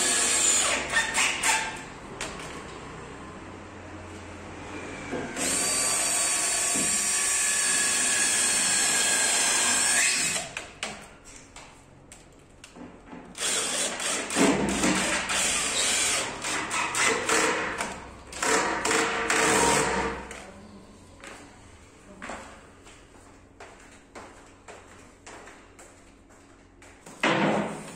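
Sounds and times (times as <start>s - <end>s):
cordless drill running: 0.0s - 0.8s, 5.4s - 10.5s, 13.4s - 14.4s, 15.0s - 16.3s.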